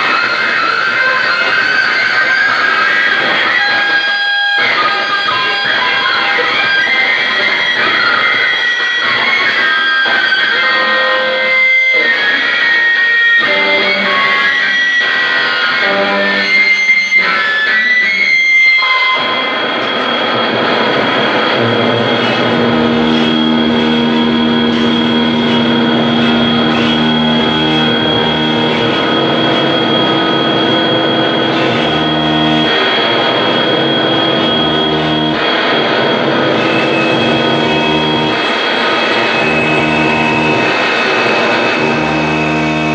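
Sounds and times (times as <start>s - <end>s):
picked electric guitar notes: 0.0s - 42.9s
low held tones: 10.7s - 42.9s
thin high tone: 18.8s - 42.9s
dense noisy drone: 19.3s - 42.9s.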